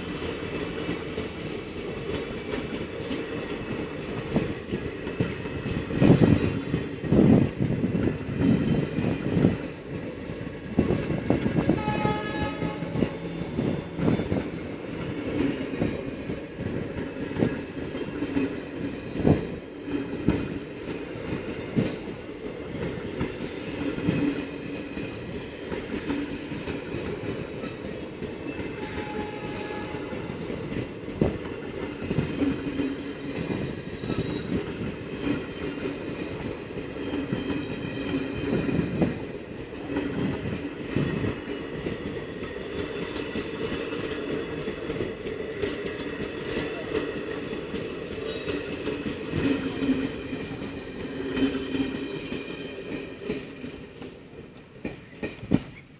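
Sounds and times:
train wheels clattering over rails: 0:00.0 - 0:55.9
train horn: 0:11.5 - 0:14.4, 0:28.5 - 0:30.6.

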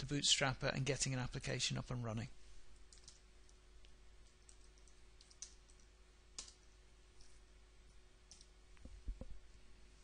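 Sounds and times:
low room hum: 0:00.0 - 0:10.0
computer clicks: 0:02.8 - 0:03.2, 0:04.2 - 0:06.6.

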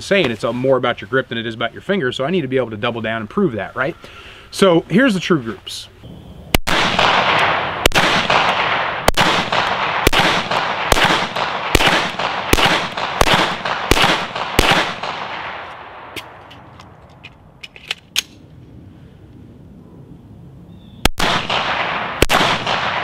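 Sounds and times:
handgun shots echoing: 0:06.6 - 0:16.7, 0:21.1 - 0:23.0.

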